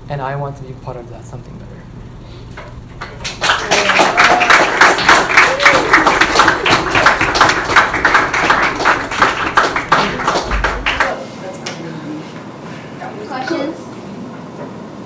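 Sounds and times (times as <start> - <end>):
audience applauding: 3.0 - 11.2.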